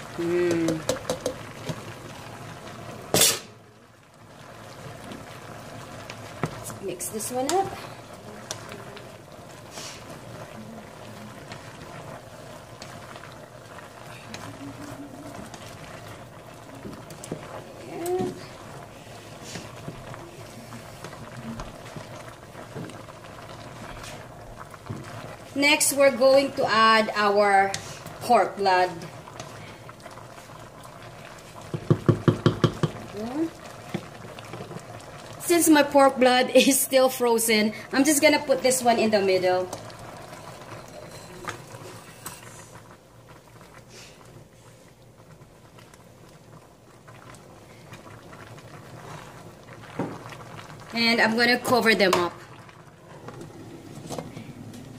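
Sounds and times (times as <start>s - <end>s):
pot bubbling: 0.0s - 54.9s
glass bowl knocking on pot: 0.6s - 1.4s, 31.7s - 33.0s.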